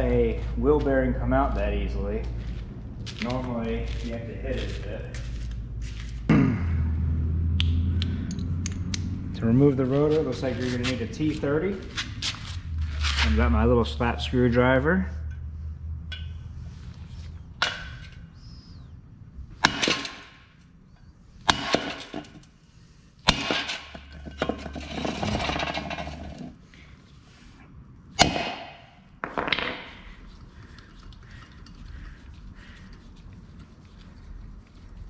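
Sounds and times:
tool scraping on rotor: 23.6 - 26.6.

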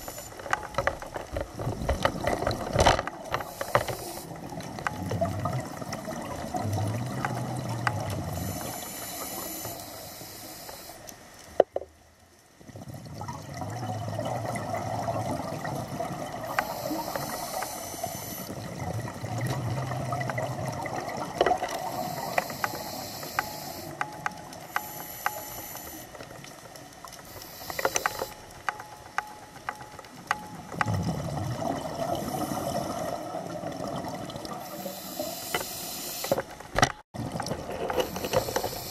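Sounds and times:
faint clicks: 0.0 - 12.5, 16.5 - 18.5, 21.4 - 31.3
hissing regulator inhalations: 3.3 - 4.5, 8.3 - 11.1, 16.5 - 18.5, 21.6 - 26.3, 27.2 - 28.6, 32.1 - 33.2, 34.6 - 36.5, 37.9 - 38.9
bubbling exhalations underwater: 30.8 - 34.6.

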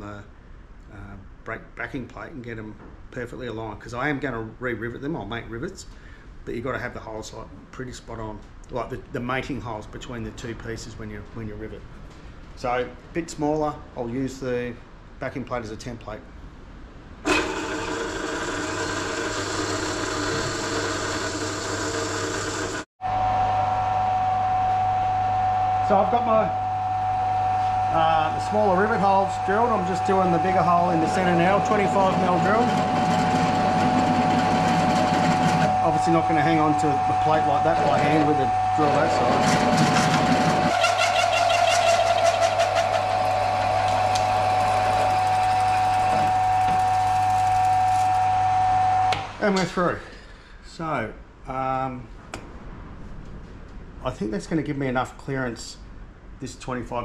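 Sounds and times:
pillar drill cutting metal: 17.3 - 22.9, 29.0 - 48.2.

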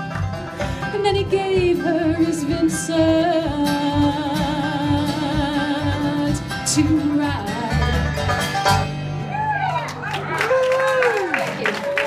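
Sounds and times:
acoustic folk band playing: 0.0 - 11.3
woman singing with vibrato: 0.8 - 8.2.

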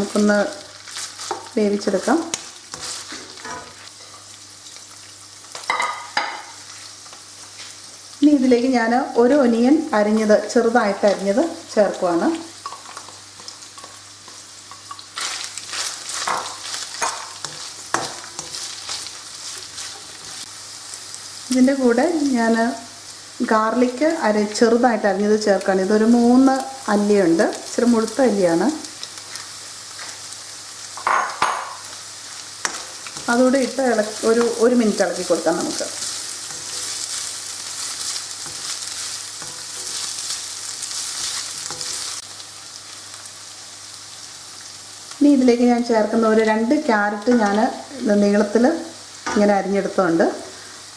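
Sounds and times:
food sizzling in oil: 0.0 - 50.9
spatula stirring in wok: 2.4 - 4.3, 12.6 - 21.2, 32.6 - 42.3.

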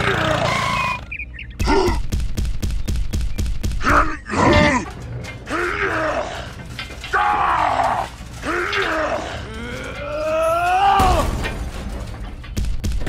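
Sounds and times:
person grunting and groaning: 1.6 - 2.1, 3.8 - 4.9, 8.5 - 11.2.

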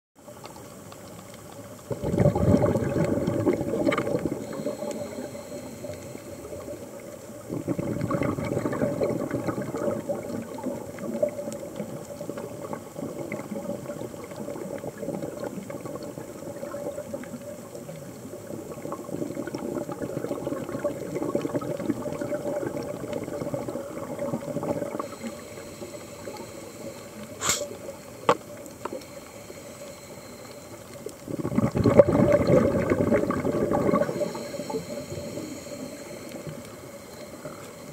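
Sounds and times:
underwater regulator breathing bubbles: 1.9 - 11.3, 19.3 - 37.9.

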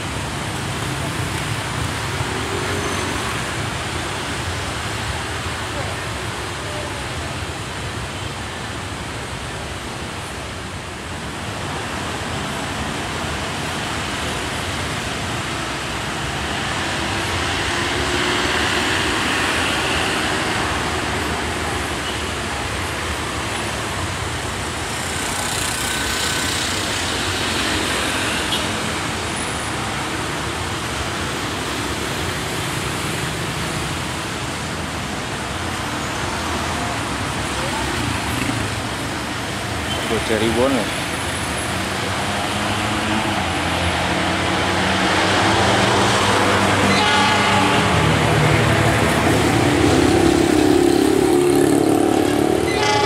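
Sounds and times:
traffic and yard noise: 0.0 - 53.0
diesel locomotive rumbling: 45.5 - 53.0.

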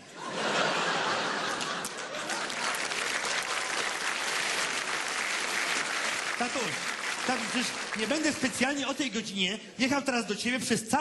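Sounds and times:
audience applauding: 0.8 - 9.0.

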